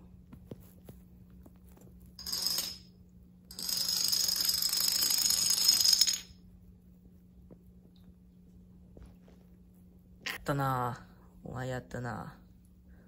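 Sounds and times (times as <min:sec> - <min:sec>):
toy dominoes clattering on wooden floor: 0:02.2 - 0:02.9, 0:03.5 - 0:06.4.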